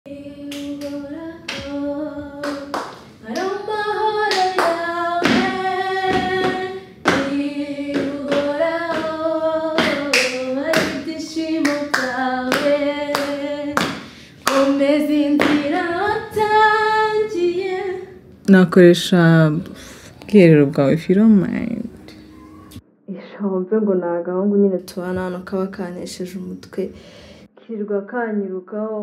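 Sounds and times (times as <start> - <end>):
hand claps: 0.5 - 1.8, 2.4 - 3.5, 4.3 - 5.5, 7.9 - 9.2, 9.8 - 11.0, 11.6 - 14.7.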